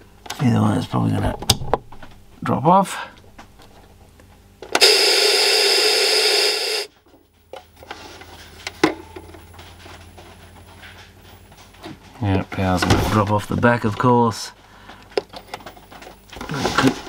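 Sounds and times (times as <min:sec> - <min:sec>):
power click: 0:04.8 - 0:06.9
tv static hiss: 0:04.8 - 0:06.9.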